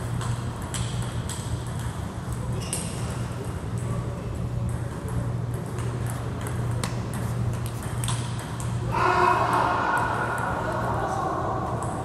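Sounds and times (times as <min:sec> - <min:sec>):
table tennis ball bouncing: 0:00.0 - 0:03.9, 0:04.6 - 0:08.8.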